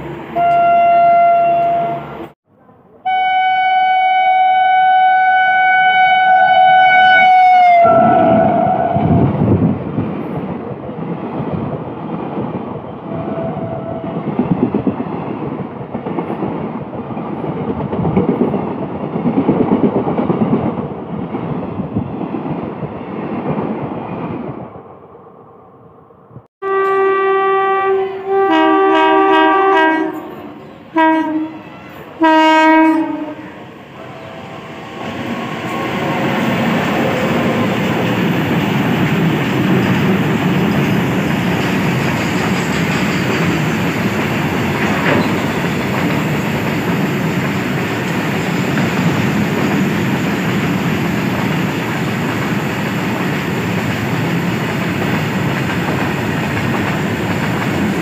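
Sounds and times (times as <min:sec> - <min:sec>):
locomotive horn blasts: 0:00.4 - 0:02.2, 0:03.0 - 0:09.2, 0:26.6 - 0:34.5
train wheels rumbling on rails: 0:07.8 - 0:24.8, 0:28.3 - 0:58.0.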